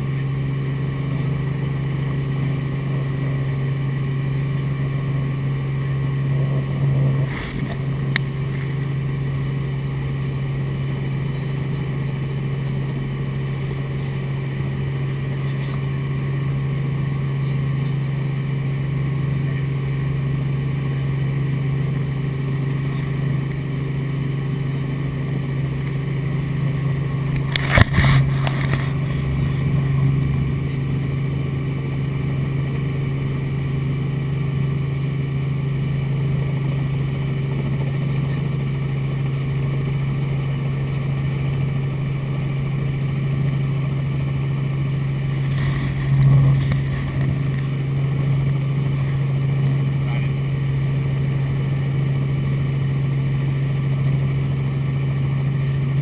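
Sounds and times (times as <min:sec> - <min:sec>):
helicopter engine and rotor drone: 0:00.0 - 0:56.0.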